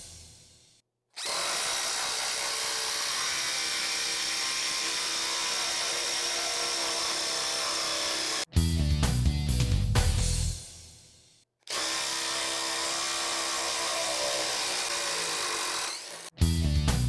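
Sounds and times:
impact driver buzzing: 0:01.2 - 0:08.4, 0:11.7 - 0:16.3.

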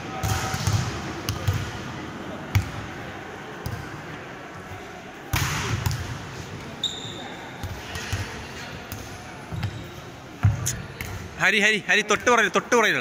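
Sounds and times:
players' voices: 0:00.0 - 0:13.0
volleyball smack: 0:05.3 - 0:06.1.

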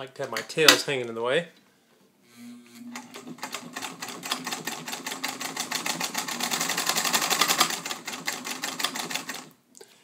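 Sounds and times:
sewing machine stitching: 0:02.9 - 0:09.5.

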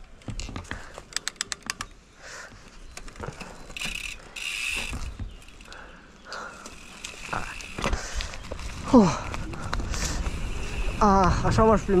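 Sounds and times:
bicycle freehub ratcheting clicks: 0:03.8 - 0:08.3.

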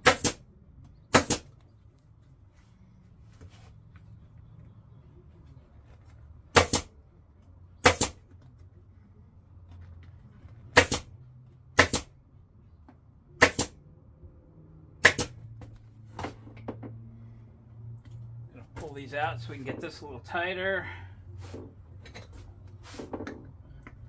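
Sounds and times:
pneumatic staple gun firing: 0:01.1 - 0:01.4, 0:07.9 - 0:08.2, 0:10.8 - 0:11.0, 0:11.8 - 0:12.1, 0:13.4 - 0:13.7, 0:15.0 - 0:15.3.

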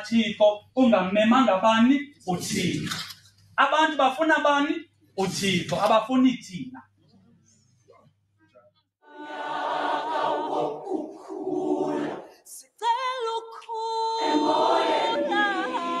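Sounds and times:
large choir singing: 0:09.0 - 0:12.6, 0:14.0 - 0:16.0.

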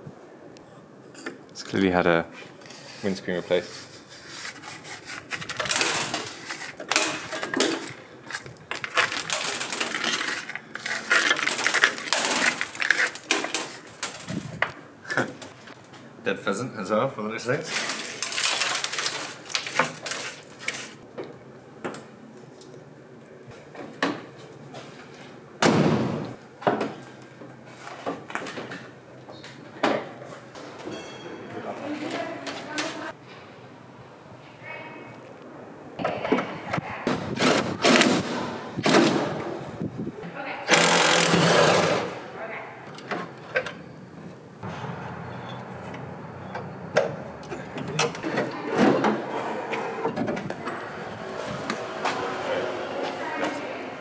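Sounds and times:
stick scraping dry leaves from metal: 0:08.3 - 0:14.3.

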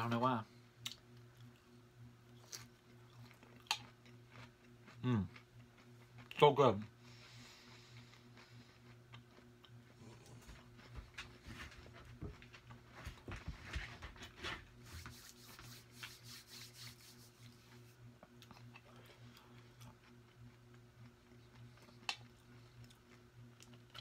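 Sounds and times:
faint low hum: 0:00.0 - 0:24.0
chewing and wet mouth sounds: 0:00.8 - 0:06.4, 0:07.6 - 0:11.0, 0:18.2 - 0:24.0.

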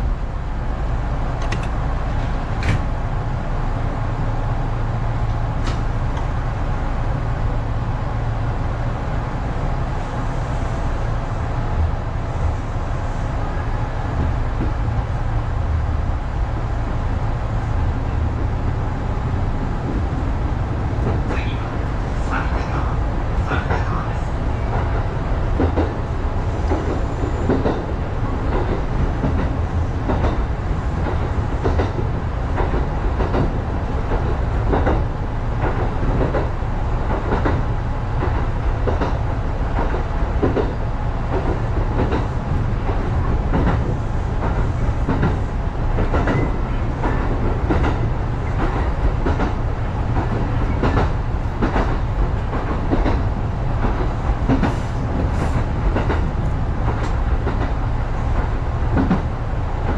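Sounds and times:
train rumble: 0:00.0 - 0:59.9
wheels clacking on rail joints: 0:26.6 - 0:59.9.

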